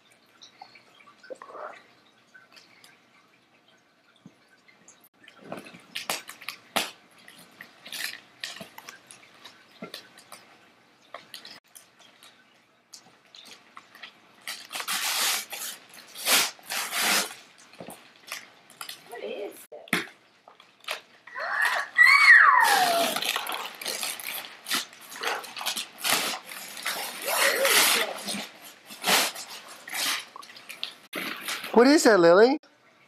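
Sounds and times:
wrapping paper crinkling and tearing: 13.4 - 17.4, 20.8 - 31.9.

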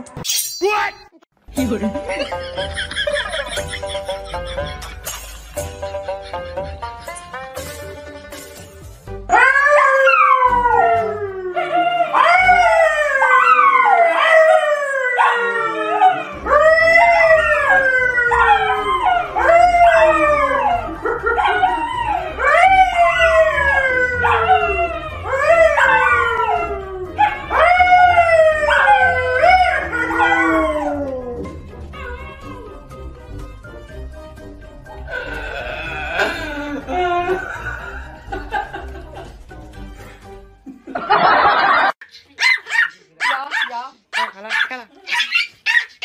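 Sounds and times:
dogs howling: 9.3 - 32.9
man howling: 35.1 - 37.6.

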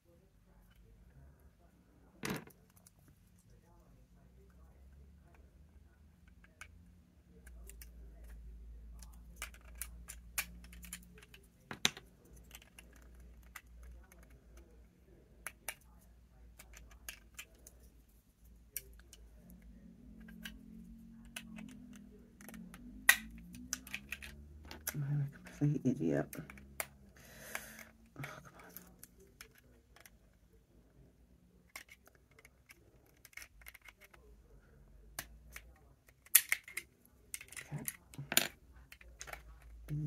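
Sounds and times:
faint low hum: 0.0 - 40.0
plastic bricks clicking and snapping: 9.0 - 14.7, 15.4 - 17.9, 18.7 - 25.6, 31.6 - 34.2, 35.1 - 40.0.

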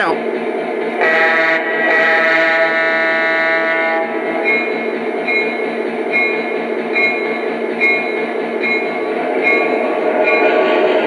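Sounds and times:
model locomotive diesel engine sound: 0.0 - 11.0
locomotive bell ringing: 4.3 - 10.7.

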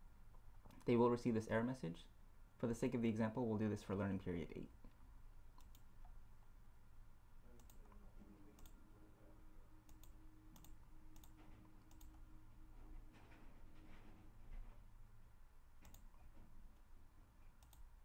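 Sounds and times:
low steady hum: 0.0 - 18.0
computer mouse clicks: 0.6 - 0.9, 5.5 - 6.2, 7.5 - 8.0, 8.6 - 8.8, 9.9 - 12.2, 15.8 - 16.2, 17.6 - 17.9.

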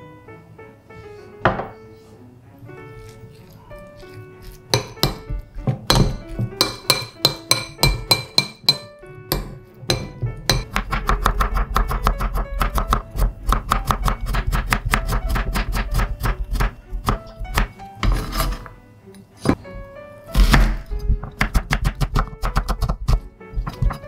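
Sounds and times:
background music: 0.0 - 24.0
knife chopping on wooden board: 4.4 - 18.6, 20.4 - 24.0
metal spoon clinking ceramic bowl: 5.9 - 10.6.

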